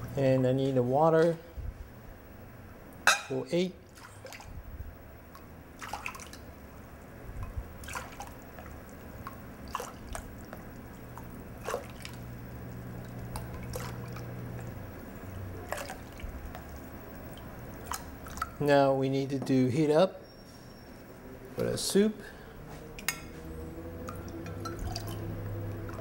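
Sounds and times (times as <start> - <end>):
water poured into bowl splashing: 7.8 - 12.3, 13.0 - 14.3, 15.6 - 16.7, 24.1 - 26.0.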